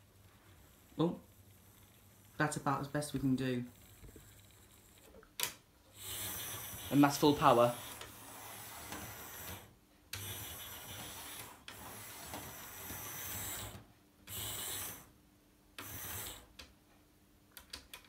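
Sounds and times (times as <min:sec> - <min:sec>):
model train motor buzzing: 0:05.9 - 0:15.1, 0:15.8 - 0:16.5.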